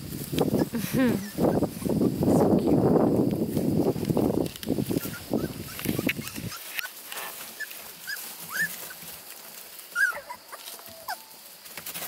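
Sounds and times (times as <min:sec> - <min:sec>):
rustling of wood shavings: 0:00.0 - 0:12.0
puppies whimpering: 0:00.5 - 0:02.2, 0:04.9 - 0:09.2, 0:09.9 - 0:11.4.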